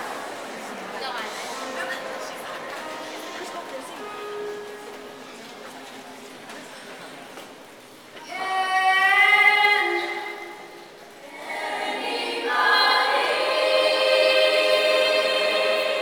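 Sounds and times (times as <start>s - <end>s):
young choir singing held chords: 8.3s - 16.0s.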